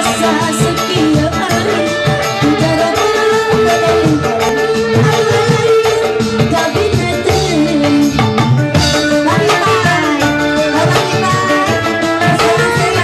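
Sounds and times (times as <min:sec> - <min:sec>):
hand drum rhythm: 0:00.0 - 0:13.0
keyboard melody with sliding notes: 0:00.0 - 0:13.0.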